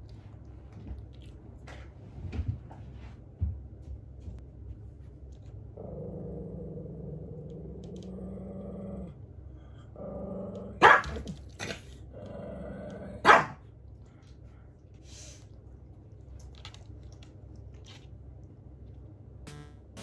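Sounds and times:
dog growling: 5.8s - 9.2s, 9.9s - 10.8s, 11.6s - 13.2s
dog barking sharply: 10.8s - 11.2s, 13.2s - 13.6s.

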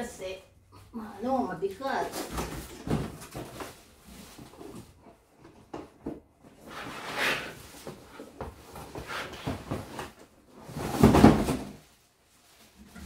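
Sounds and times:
cardboard rustling scrape: 6.6s - 11.9s.

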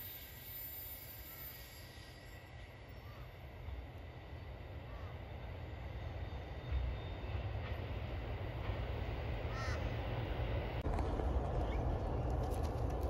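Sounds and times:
distant freight train rumble: 0.0s - 13.0s
crow cawing: 4.9s - 5.2s, 9.5s - 9.9s.

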